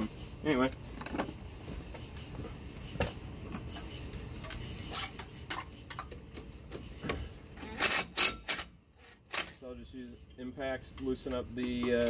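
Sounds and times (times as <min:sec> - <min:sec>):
sharp clicks and metal knocks: 0:10.8 - 0:12.0.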